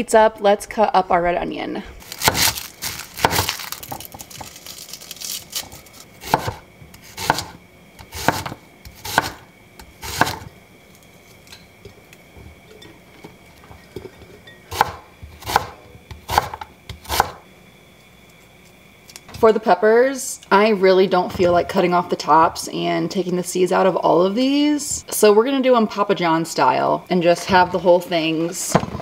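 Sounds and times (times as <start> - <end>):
knife slicing onion: 2.0 - 4.5, 5.5 - 10.5, 14.7 - 17.4.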